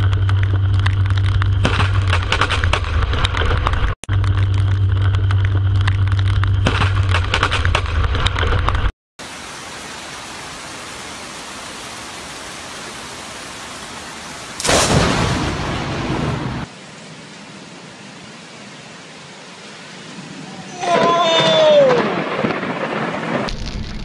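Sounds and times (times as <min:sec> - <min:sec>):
heavy rain rumble with crackling: 0:00.0 - 0:24.0
hiss of falling rain: 0:09.2 - 0:24.0.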